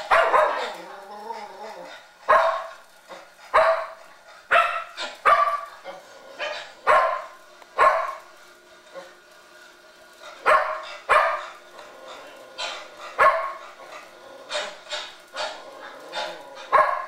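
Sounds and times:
dog barking: 0.0 - 0.8, 2.3 - 2.8, 3.5 - 5.8, 6.4 - 8.2, 10.4 - 11.6, 12.2 - 13.7, 14.5 - 17.0.

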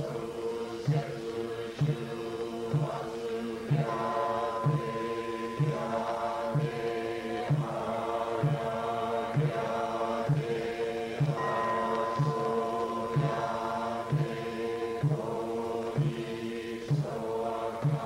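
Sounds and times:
group chanting in unison: 0.0 - 18.0
clear ringing bell tone: 3.7 - 7.4, 11.3 - 15.6.

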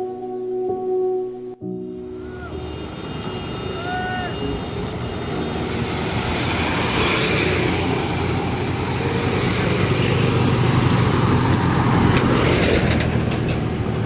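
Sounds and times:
traffic passing: 1.7 - 14.0.

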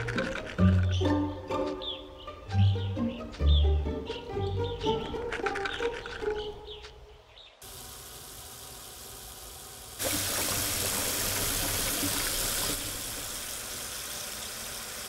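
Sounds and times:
tap water running into sink: 7.7 - 15.0.

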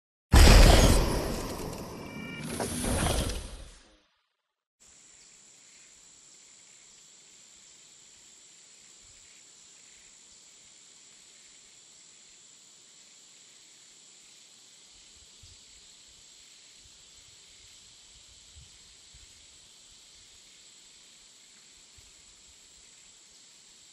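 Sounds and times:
high-pitched hiss: 4.8 - 23.9.

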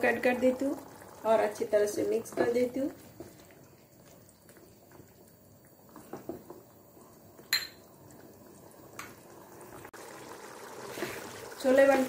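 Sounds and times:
metal spoon clinking on pan: 7.5 - 7.8.

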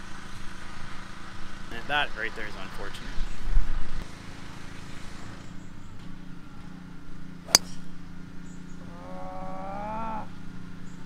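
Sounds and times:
golf club striking ball: 7.4 - 8.0
person calling out: 8.9 - 10.3.

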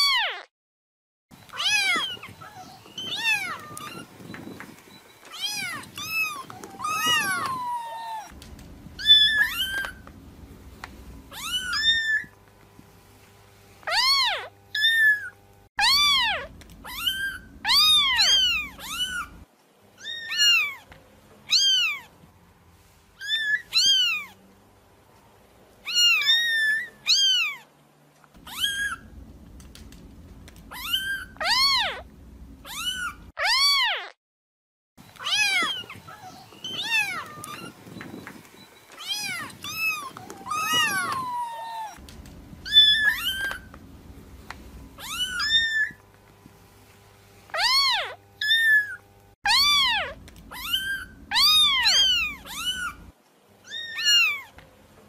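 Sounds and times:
faint low rumble: 1.4 - 13.5, 15.8 - 19.5, 28.4 - 33.3, 35.7 - 47.1, 49.5 - 53.2
kittens meowing: 1.5 - 4.2, 5.3 - 8.4, 9.0 - 10.1, 11.3 - 12.3, 13.9 - 20.9, 21.5 - 22.1, 23.2 - 24.4, 25.8 - 27.6, 28.4 - 34.1, 35.2 - 37.8, 38.9 - 46.0, 47.5 - 54.6.

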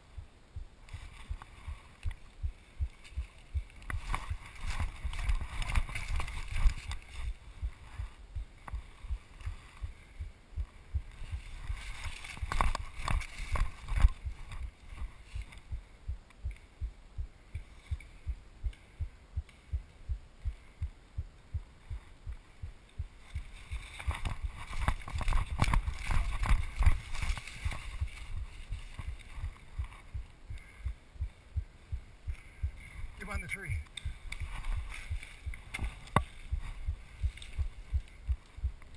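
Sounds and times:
rustling of brush and leaves: 0.0 - 38.9
heavy breathing: 30.5 - 33.2.

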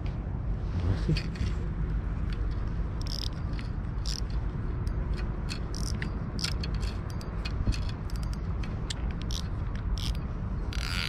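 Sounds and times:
wind rumble on microphone: 0.0 - 11.0
fishing reel gears ticking: 3.0 - 11.0.

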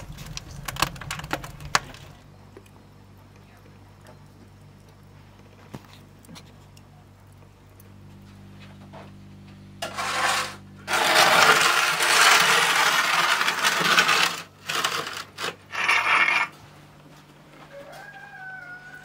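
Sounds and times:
metal tray scraping on brick: 9.8 - 16.6.

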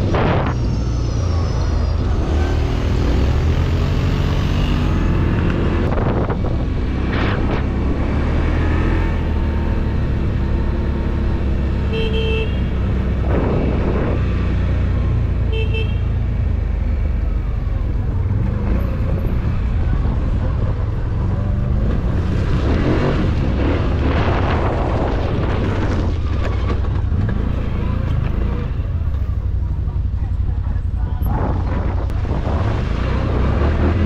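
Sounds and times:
vehicle horn toots: 11.8 - 12.8, 15.5 - 16.2.

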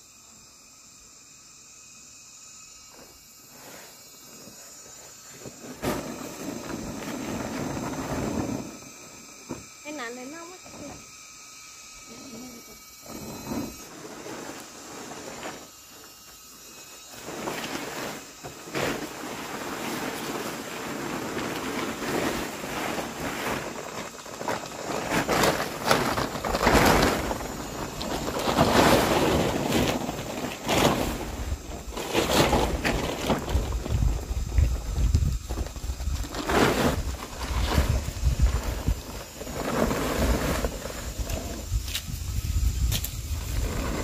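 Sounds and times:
plastic tarp rustling: 3.5 - 8.8, 12.2 - 16.1, 17.1 - 44.0
wind rumbling on microphone: 19.3 - 44.0.

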